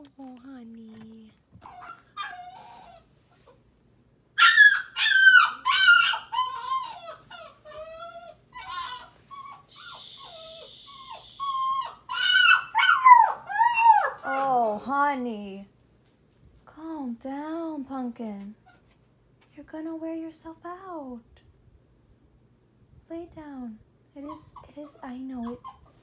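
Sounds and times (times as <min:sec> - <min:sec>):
puppy crying: 0:01.6 - 0:03.6, 0:04.4 - 0:14.5, 0:24.2 - 0:26.0
puppy whimpering: 0:01.6 - 0:03.6, 0:04.4 - 0:14.5, 0:24.2 - 0:26.0.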